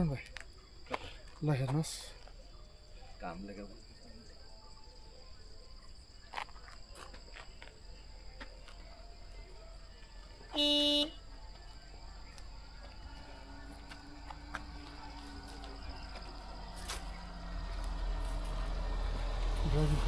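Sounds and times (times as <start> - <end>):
high drone of insects: 0.0 - 20.0
vehicle horn beep: 10.4 - 11.3.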